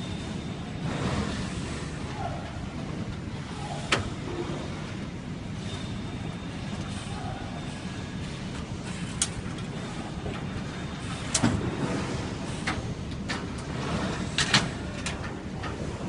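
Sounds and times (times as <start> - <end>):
steady low hum: 0.0 - 16.0
metal drawer sliding: 8.8 - 16.0.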